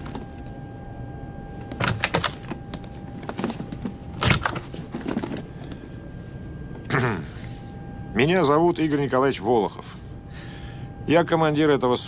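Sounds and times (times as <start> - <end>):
cockpit background hum: 0.0 - 12.0
rustles and clicks of movement: 1.5 - 6.4.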